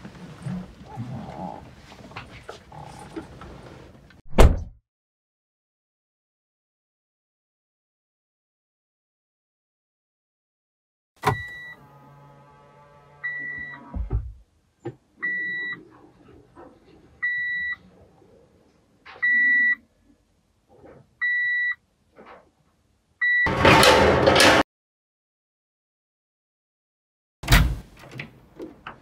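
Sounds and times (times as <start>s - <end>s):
thump: 4.3s - 4.8s, 13.9s - 15.0s
car warning chime beeping: 11.2s - 12.1s.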